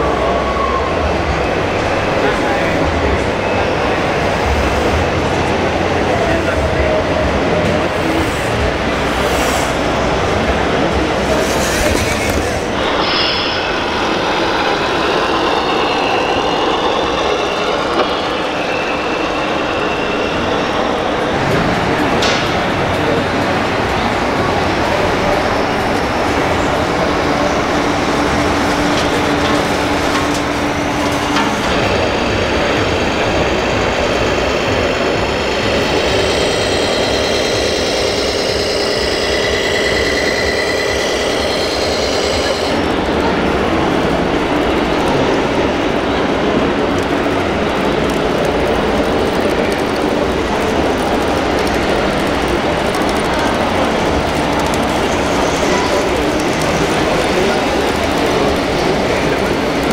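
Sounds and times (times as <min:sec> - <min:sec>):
crowded hall din: 0:00.0 - 0:59.9
model trucks driving: 0:00.0 - 0:59.9
toy truck engine running: 0:35.0 - 0:42.8.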